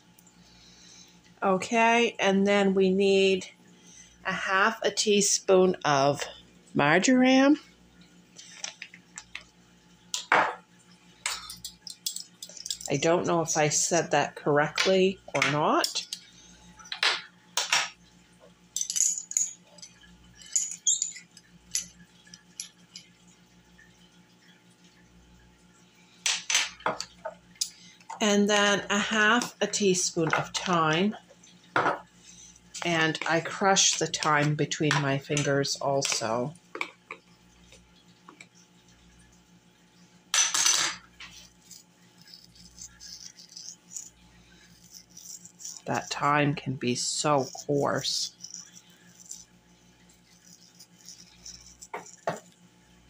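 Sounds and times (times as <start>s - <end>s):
faint steady hum: 0.0s - 53.0s
metal spoons and jars clinking: 11.3s - 13.0s, 18.8s - 23.1s.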